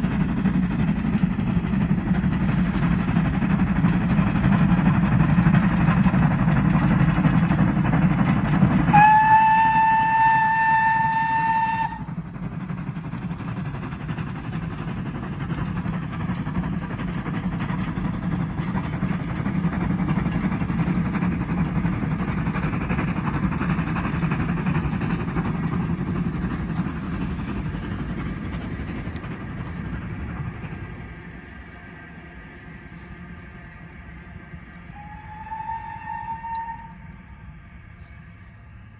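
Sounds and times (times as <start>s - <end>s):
steam train passing: 0.0s - 38.9s
steam locomotive whistle: 8.9s - 12.1s, 34.8s - 37.2s.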